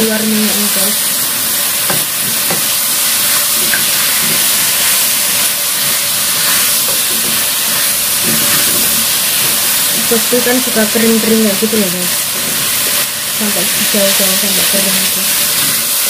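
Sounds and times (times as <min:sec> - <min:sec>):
food sizzling in a wok: 0:00.0 - 0:16.0
spatula scraping: 0:01.7 - 0:11.4.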